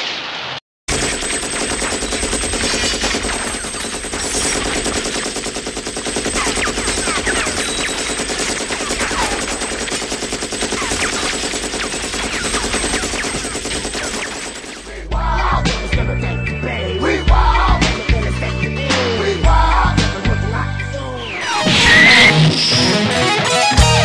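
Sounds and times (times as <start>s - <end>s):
machine-gun fire: 0.9s - 15.1s.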